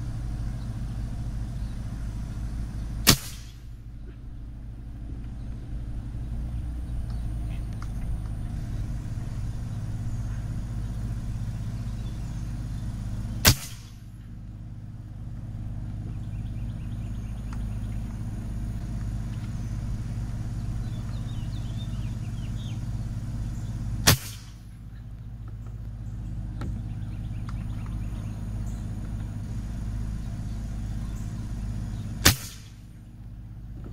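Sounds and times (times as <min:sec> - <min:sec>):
steady low hum: 0:00.0 - 0:33.9
air rifle shots: 0:03.0 - 0:03.8, 0:13.4 - 0:14.2, 0:24.0 - 0:24.7, 0:32.2 - 0:32.9
faint bird chirps: 0:05.2 - 0:14.4, 0:15.5 - 0:33.4.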